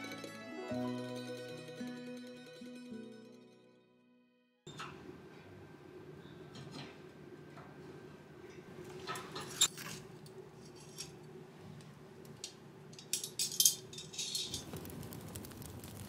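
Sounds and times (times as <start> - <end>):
metal stove clinking: 13.0 - 14.7.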